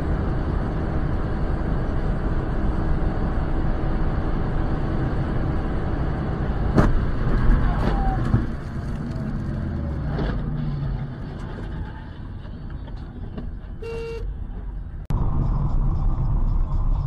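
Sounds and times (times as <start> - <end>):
car road and engine noise: 0.0 - 17.0
loud road noise: 0.0 - 17.0
vehicle horn: 13.8 - 14.3.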